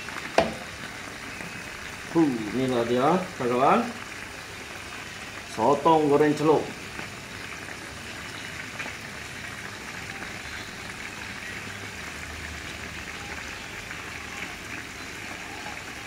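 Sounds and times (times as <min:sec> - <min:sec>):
food deep-frying in oil: 0:00.0 - 0:16.0.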